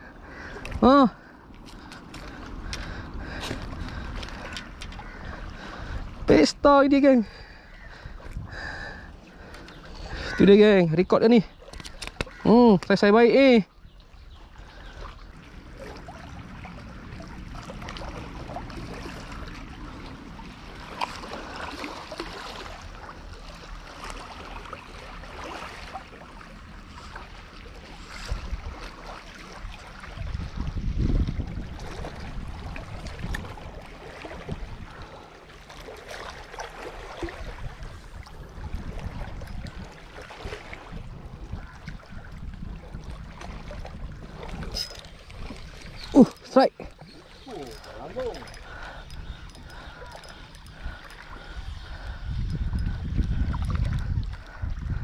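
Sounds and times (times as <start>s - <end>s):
small waves lapping on rocks: 14.2s - 52.4s.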